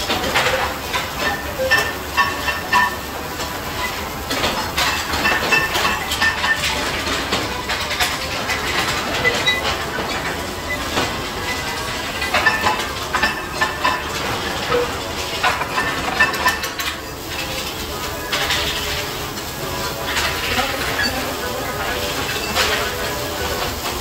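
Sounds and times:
clatter of knocks and clanks: 3.8 - 17.7.

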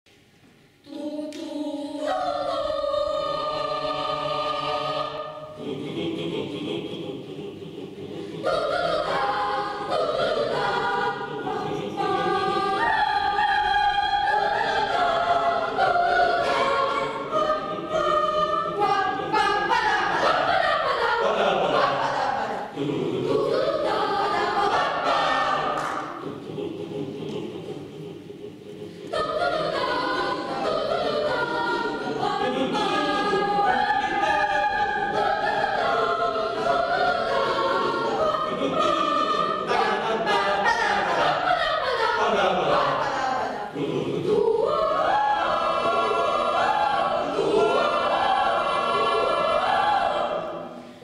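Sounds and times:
boys' choir singing a cappella: 0.8 - 51.0.

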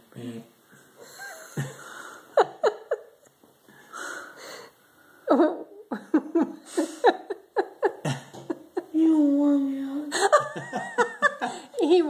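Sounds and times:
breathy gasp: 3.8 - 4.8.

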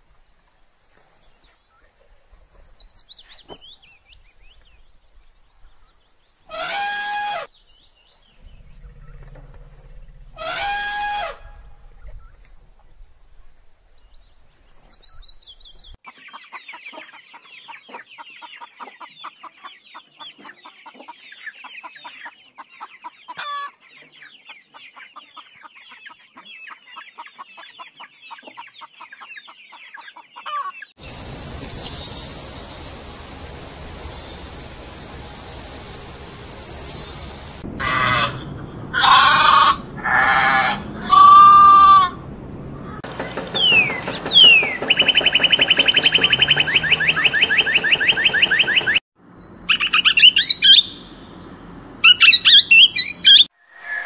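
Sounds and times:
elephant call: 8.5 - 11.7, 31.0 - 43.0
chickens clucking: 16.1 - 46.7
hissy background: 31.0 - 37.8
high calls: 31.0 - 49.0.

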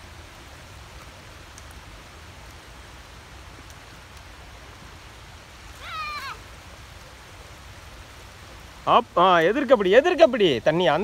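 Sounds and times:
steady rain falling: 0.0 - 11.0
high-pitched voice crying out: 5.8 - 6.4.

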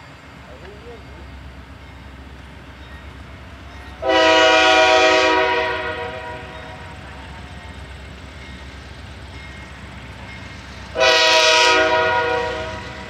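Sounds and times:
locomotive air horn blast: 4.0 - 6.5, 10.9 - 13.0.

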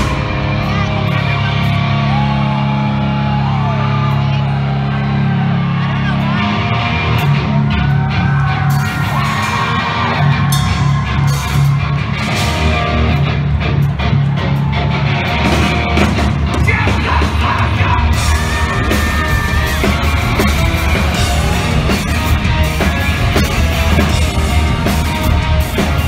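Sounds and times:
live rock music: 0.0 - 26.0
yelled and sung vocals: 16.5 - 26.0.

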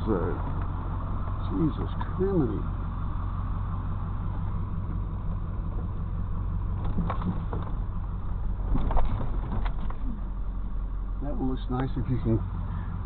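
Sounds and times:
truck knocks and rattles: 0.0 - 0.9, 4.9 - 10.2
truck engine low hum: 0.0 - 13.0.

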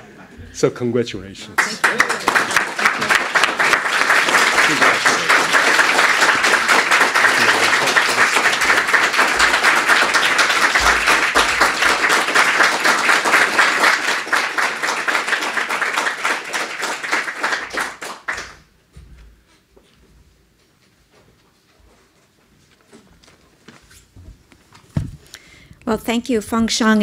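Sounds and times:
audience applauding: 1.5 - 18.7.

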